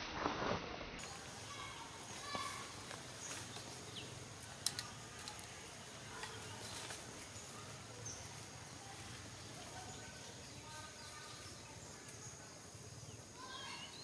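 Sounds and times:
sharp ticks: 4.4 - 5.6.

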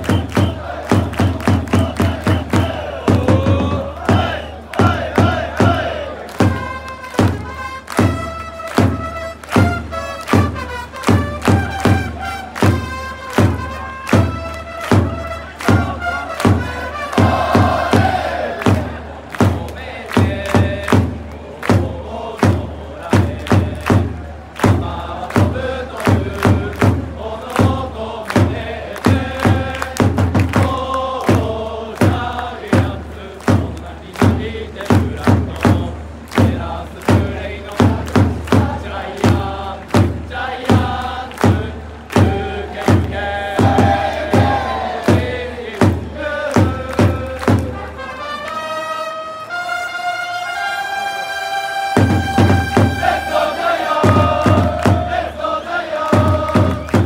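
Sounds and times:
crowd chanting in unison: 0.0 - 8.8, 11.8 - 48.6, 51.7 - 57.0
big drum strokes: 0.0 - 48.0, 51.8 - 57.0
trumpets playing a melody: 6.4 - 18.5, 47.6 - 55.5.

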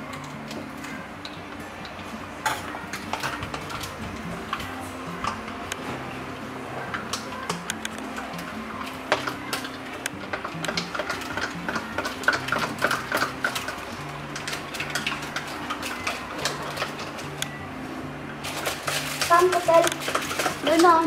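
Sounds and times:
glass and utensils clinking: 6.8 - 17.6, 18.4 - 21.0.

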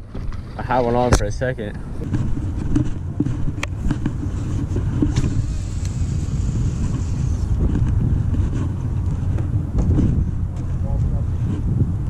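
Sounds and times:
wind buffeting microphone: 0.0 - 12.0
rod and reel handling clicks: 5.0 - 8.0.

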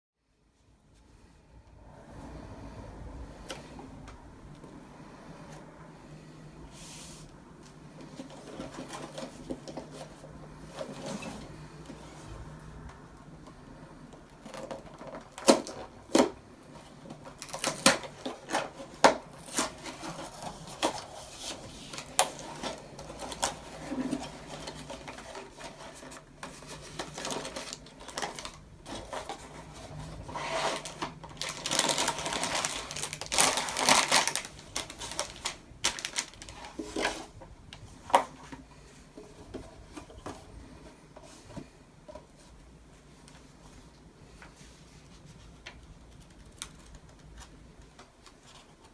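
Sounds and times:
plastic bags rustling: 14.4 - 39.2
cardboard flaps scraping: 14.5 - 37.4.

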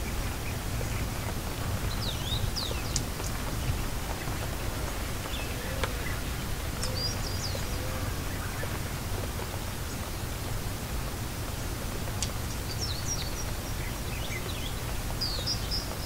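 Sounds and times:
steady rain: 0.0 - 16.0
birds chirping: 0.1 - 8.8.

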